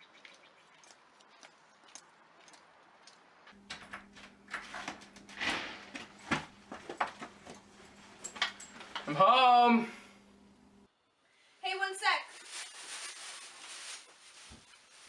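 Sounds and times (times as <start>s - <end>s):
faint footsteps: 0.8s - 9.2s.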